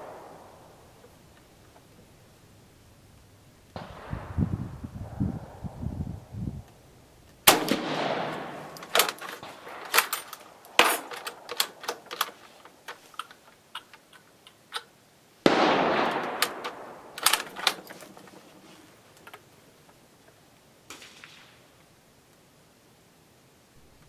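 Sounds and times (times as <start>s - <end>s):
rifle shots echoing: 0.0s - 1.4s, 3.8s - 4.6s, 7.4s - 12.5s, 15.4s - 18.2s, 20.9s - 21.7s
rifle bolt clicks: 7.4s - 14.9s, 15.9s - 18.3s.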